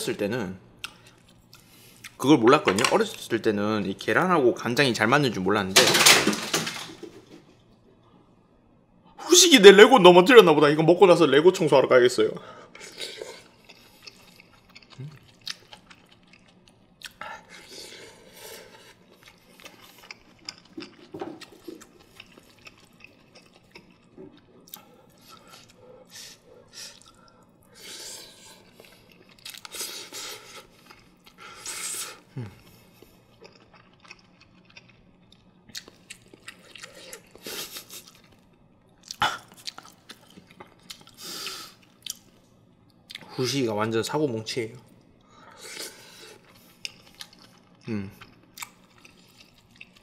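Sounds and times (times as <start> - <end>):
chewing and wet mouth sounds: 0.8 - 2.2, 12.7 - 43.4, 44.9 - 50.0.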